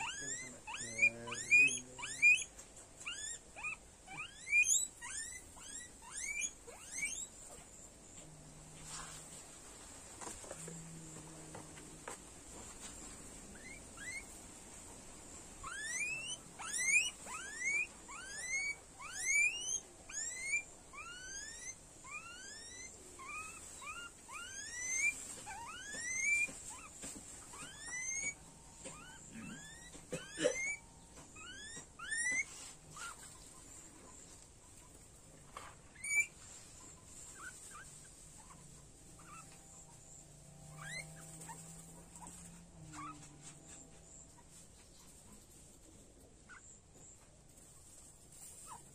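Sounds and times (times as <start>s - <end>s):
guinea pig small squeaks: 0.0s - 8.2s, 12.0s - 48.9s
guinea pig squealing: 0.0s - 8.2s, 13.5s - 14.9s, 15.5s - 48.9s.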